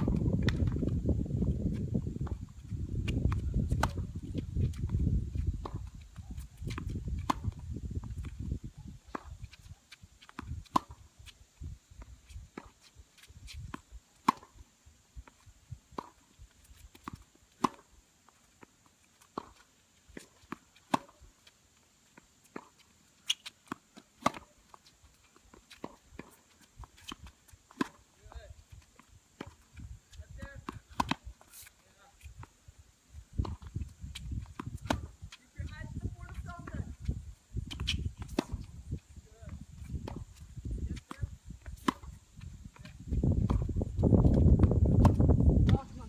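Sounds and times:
tennis balls struck with rackets: 0.0 - 0.8, 3.0 - 4.2, 6.6 - 7.6, 10.3 - 11.0, 13.7 - 14.6, 17.0 - 17.9, 19.3 - 21.2, 22.5 - 24.6, 25.6 - 28.4, 30.4 - 31.8, 33.4 - 33.7, 34.5 - 36.8, 37.7 - 38.7, 41.0 - 42.2, 42.8 - 46.0
tennis balls bouncing on court: 0.0 - 1.0, 1.7 - 8.4, 10.2 - 11.4, 12.5 - 14.6, 15.2 - 32.6, 33.2 - 37.0, 37.6 - 46.0.

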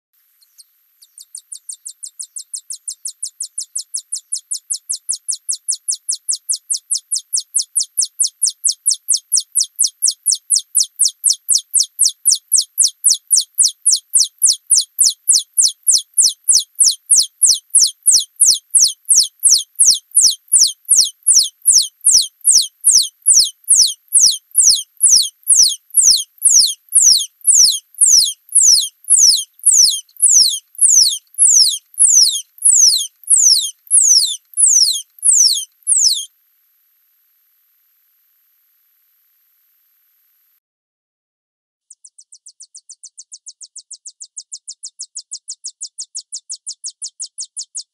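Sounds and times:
mouse singing trilled song: 0.4 - 36.3, 41.8 - 47.9.

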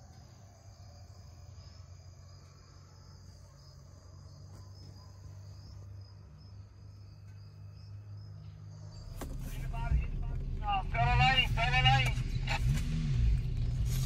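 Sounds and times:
crickets trilling: 0.0 - 10.6
low steady hum: 5.1 - 14.0.

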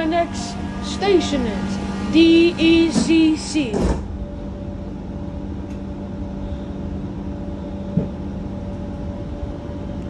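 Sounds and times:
train rumbling in tunnel: 0.0 - 10.0.

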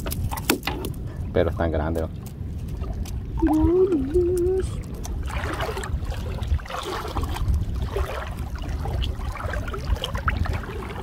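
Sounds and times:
water sloshing: 0.0 - 11.0
low rumble: 2.4 - 11.0.

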